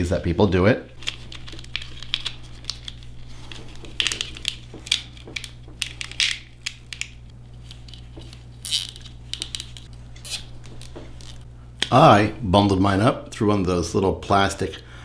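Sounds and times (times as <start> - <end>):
plastic crinkling and rustling: 1.0 - 6.1.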